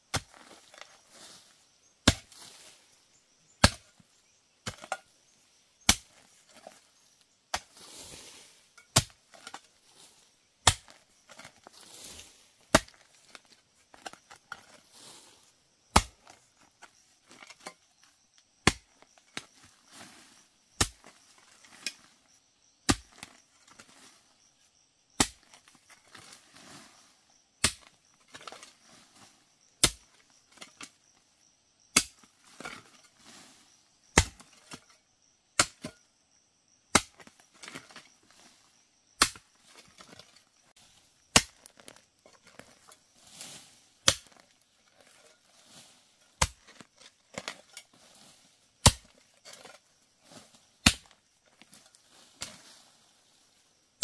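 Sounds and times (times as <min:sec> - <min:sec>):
faint rustling and scraping: 0:00.2 - 0:03.1, 0:06.1 - 0:18.2, 0:18.9 - 0:22.4, 0:25.5 - 0:27.4, 0:28.1 - 0:31.0, 0:32.3 - 0:35.1, 0:39.6 - 0:53.8.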